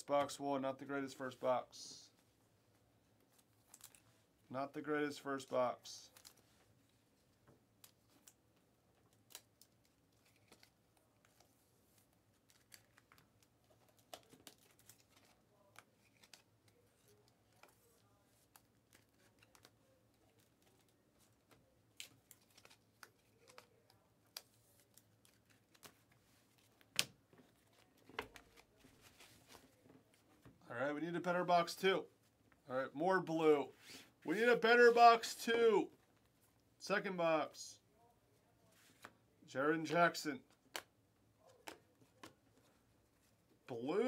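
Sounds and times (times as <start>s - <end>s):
cards and sleeves clicking and rustling: 2.2s - 4.4s, 5.3s - 30.6s, 38.6s - 39.2s, 40.4s - 43.7s.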